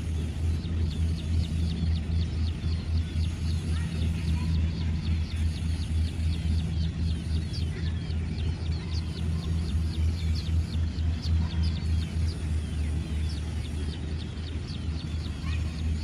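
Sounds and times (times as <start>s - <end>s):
harvester engine humming: 0.0s - 16.0s.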